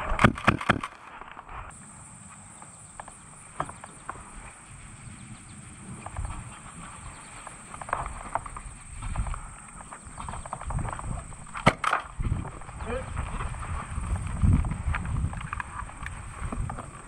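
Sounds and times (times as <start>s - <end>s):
sharp clacks: 0.0s - 1.4s
footsteps through grass: 0.9s - 17.0s.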